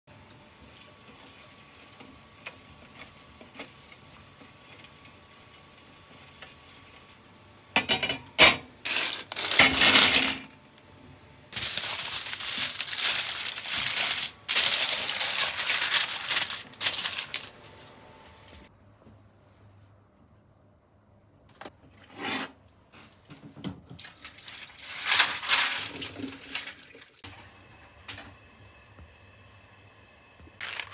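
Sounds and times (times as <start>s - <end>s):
aluminium foil crinkling: 0.6s - 7.2s, 8.9s - 10.4s, 11.6s - 17.8s, 24.5s - 26.8s, 30.6s - 30.9s.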